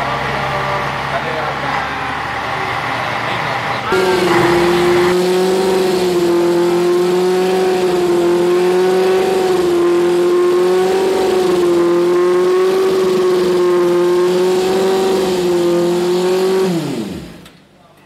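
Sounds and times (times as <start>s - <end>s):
race car engine running: 0.0s - 17.8s.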